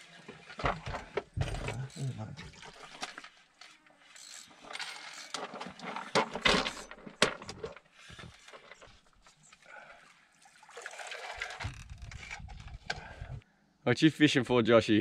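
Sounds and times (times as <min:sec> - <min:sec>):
sharp knocks and clatter of gear: 0:00.5 - 0:09.6
rubbing and handling noise: 0:02.7 - 0:09.6.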